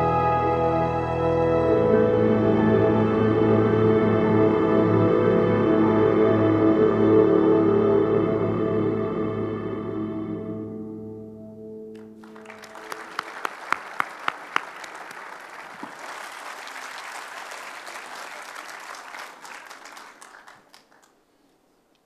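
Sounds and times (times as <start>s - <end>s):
slow ambient music: 0.0s - 13.2s
audience applauding: 12.0s - 21.2s.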